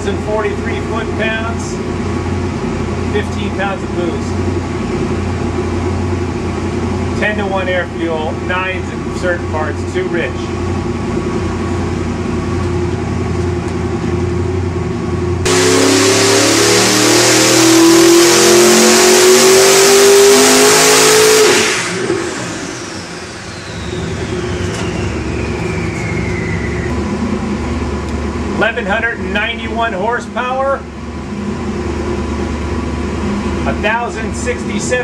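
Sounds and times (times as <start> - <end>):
turbocharger whistle: 15.4 - 27.2
engine revving to full throttle: 15.4 - 29.4.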